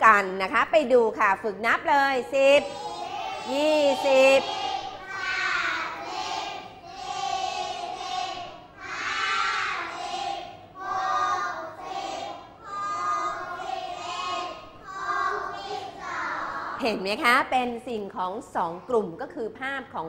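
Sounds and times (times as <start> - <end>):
children counting aloud in unison: 2.6 - 16.8.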